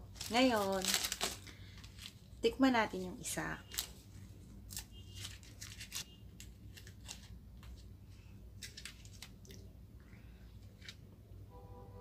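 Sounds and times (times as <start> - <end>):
foil wrapper crinkling and tearing: 0.0 - 2.3, 3.6 - 4.0, 4.6 - 7.4.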